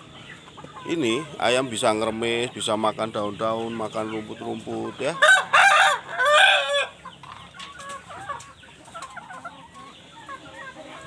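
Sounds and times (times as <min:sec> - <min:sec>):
chickens clucking: 0:00.0 - 0:11.0
rooster crowing: 0:05.2 - 0:07.0.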